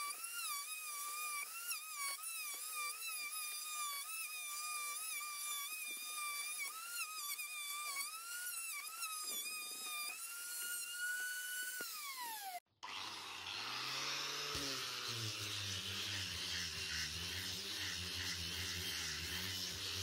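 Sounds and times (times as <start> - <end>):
power tool low hum: 0.0 - 20.0
router whining: 0.0 - 20.0.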